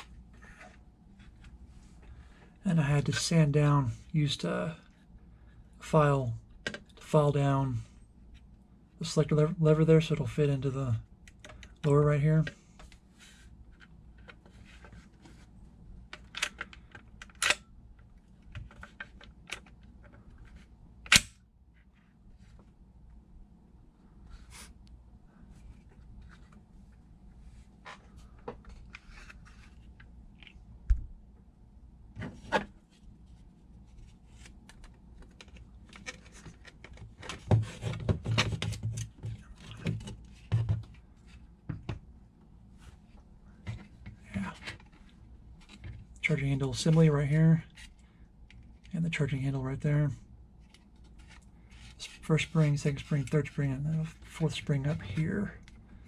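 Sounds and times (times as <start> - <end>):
plastic gun parts clicking and rattling: 16.1 - 21.4, 34.4 - 40.7.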